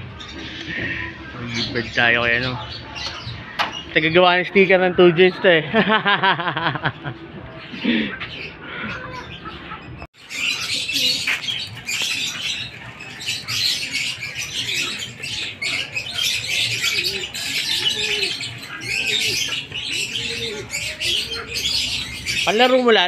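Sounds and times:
high bird sounds: 0.0s - 23.0s
pigeons cooing: 5.8s - 23.0s.

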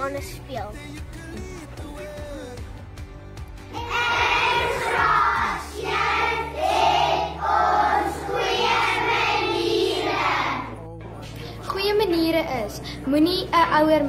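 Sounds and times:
background music: 0.0s - 14.0s
children singing in unison: 3.8s - 10.8s.

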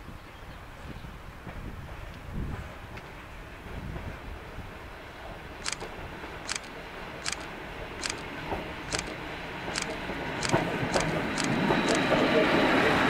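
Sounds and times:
train low rumble: 0.1s - 13.0s
sharp high-pitched clicks: 5.6s - 8.3s, 8.9s - 12.2s.

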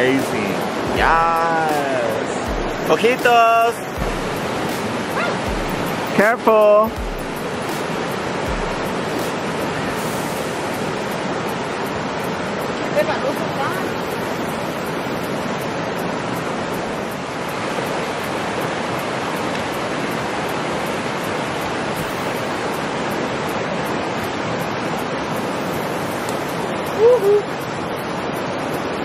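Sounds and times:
creek rushing over rocks: 0.0s - 29.0s
person exclaiming: 27.0s - 27.5s.

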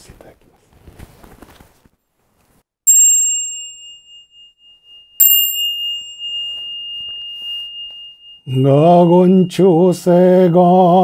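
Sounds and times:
bowl bell ringing: 2.9s - 11.0s.

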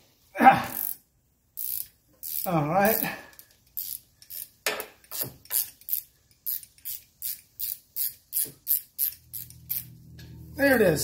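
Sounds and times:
ratchet wrench clicking: 0.8s - 1.0s, 1.6s - 10.0s.

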